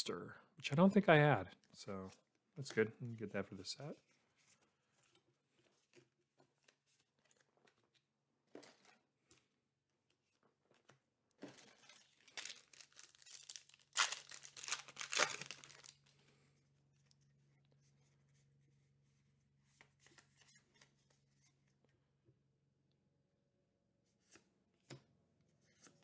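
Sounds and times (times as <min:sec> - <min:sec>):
cards rustling: 0:10.7 - 0:16.2
foil wrapper tearing and crinkling: 0:11.6 - 0:16.0.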